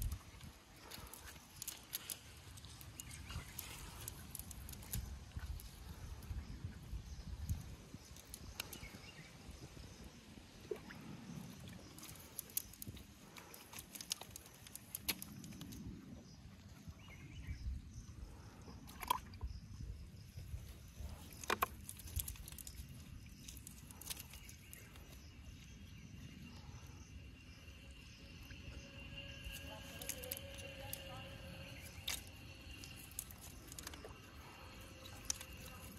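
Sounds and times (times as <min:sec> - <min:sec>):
sharp clicks and rustles: 0:11.9 - 0:15.9, 0:21.1 - 0:25.2, 0:29.5 - 0:35.9
wet net handled by hand: 0:21.2 - 0:25.2, 0:31.7 - 0:35.9.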